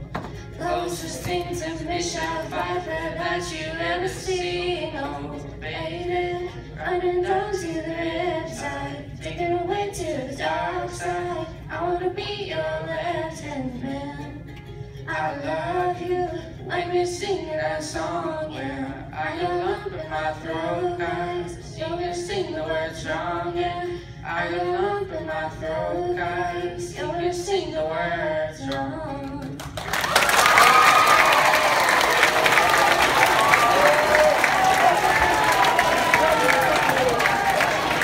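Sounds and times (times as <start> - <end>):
ukulele strumming: 0.0 - 27.8
girl singing pop song: 0.0 - 29.8.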